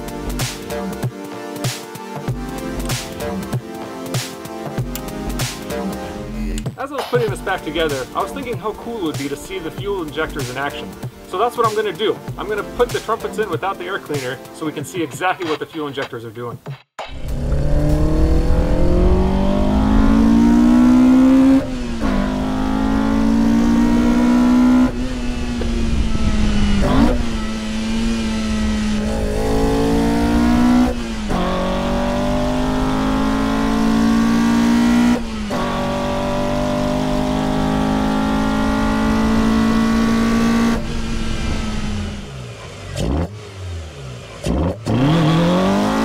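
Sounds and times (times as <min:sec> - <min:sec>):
car engine revving high: 0:17.0 - 0:46.0.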